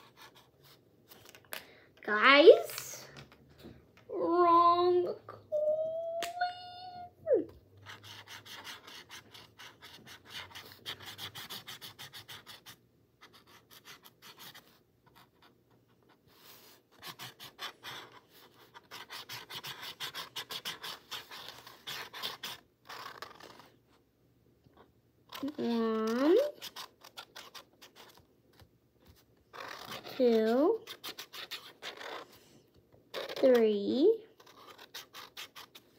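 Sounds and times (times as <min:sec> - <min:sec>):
marker scratching on paper: 0:00.0 - 0:00.8, 0:07.8 - 0:23.8, 0:25.3 - 0:28.2, 0:29.1 - 0:32.4, 0:33.1 - 0:35.9.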